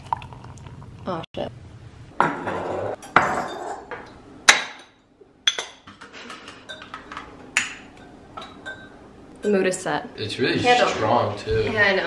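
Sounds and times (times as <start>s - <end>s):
ceramic mugs clinking: 2.2s - 9.0s.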